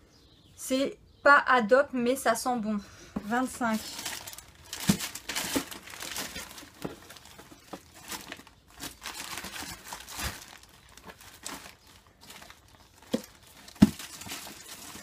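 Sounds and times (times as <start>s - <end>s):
wrapping paper crinkling: 3.6s - 15.0s.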